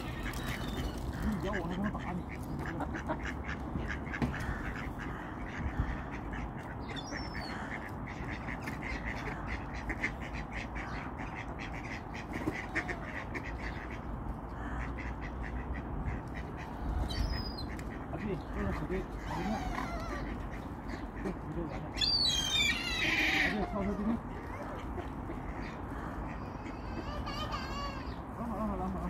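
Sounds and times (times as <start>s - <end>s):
ducks quacking: 0.0s - 29.0s
high bird call: 22.0s - 23.6s.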